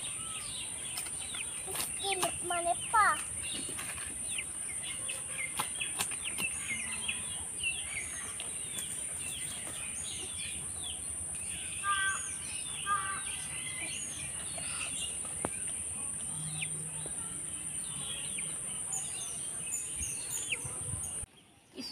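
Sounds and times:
loud bird calls: 0.0s - 15.7s
small birds chirping: 0.0s - 21.9s.

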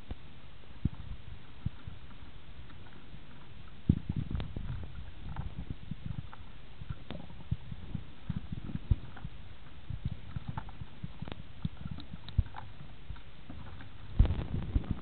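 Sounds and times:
faint clicks: 0.8s - 7.6s, 8.2s - 15.0s
low underwater thumps and knocks: 3.8s - 15.0s.

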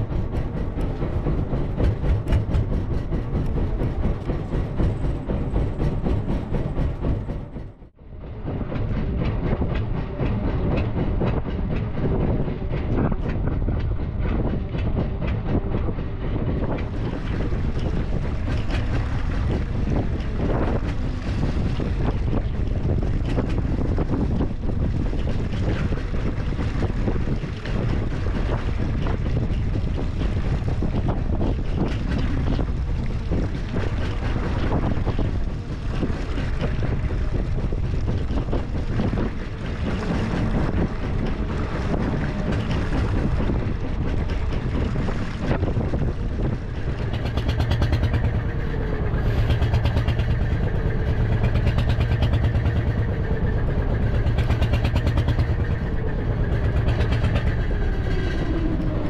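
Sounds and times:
boat engine running: 0.0s - 59.0s
wind buffeting microphone: 0.0s - 59.0s.

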